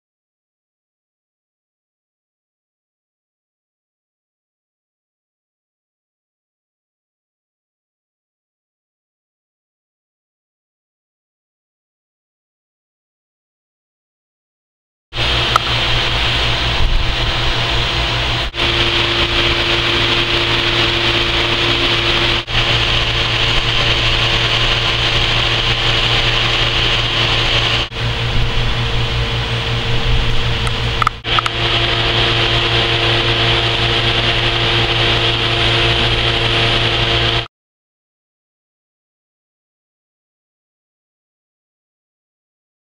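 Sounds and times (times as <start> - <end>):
hydraulic pump running: 15.2 - 37.5.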